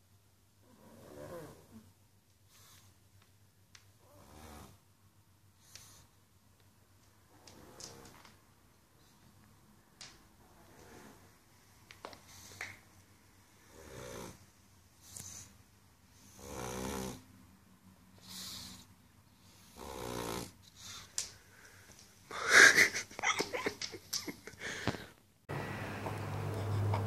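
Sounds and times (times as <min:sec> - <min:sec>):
dog snoring: 0:00.6 - 0:01.9, 0:04.0 - 0:04.8, 0:10.4 - 0:11.3, 0:13.6 - 0:14.4, 0:16.1 - 0:17.2, 0:18.2 - 0:21.1.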